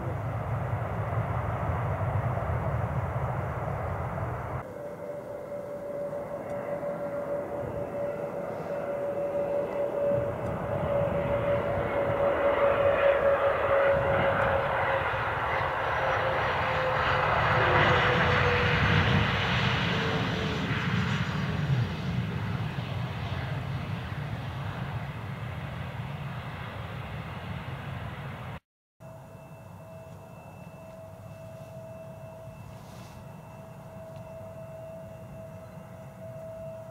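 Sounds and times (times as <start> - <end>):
jet engines whining: 0.0 - 28.6.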